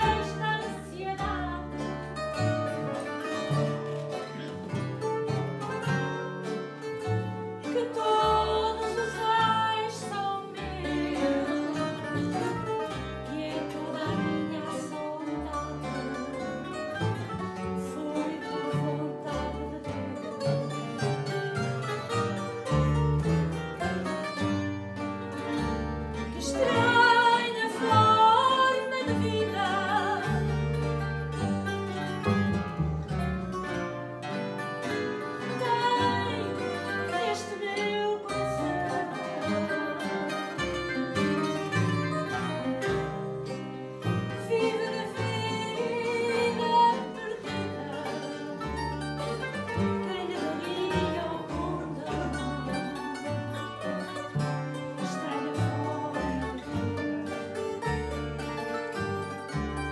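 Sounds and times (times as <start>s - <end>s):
woman singing with vibrato: 0.0s - 2.0s, 7.6s - 16.4s, 17.6s - 20.9s, 26.3s - 30.7s, 35.4s - 42.2s, 44.3s - 54.1s, 54.9s - 56.9s
guitars playing: 0.0s - 59.9s
plucked double bass: 0.0s - 59.9s.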